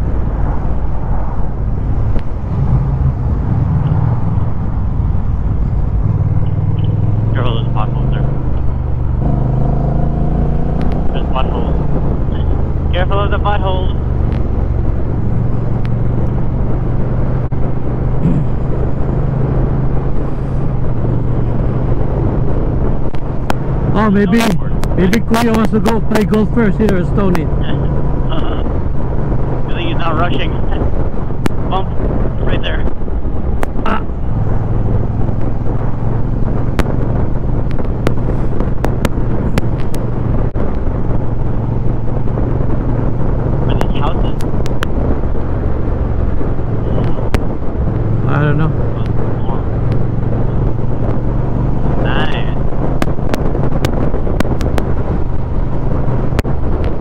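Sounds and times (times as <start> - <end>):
motorcycle engine cruising: 0.0 - 57.0
road and wind noise: 0.0 - 57.0
sharp audio crackles: 0.5 - 57.0
motorcycle engine running: 3.8 - 26.2.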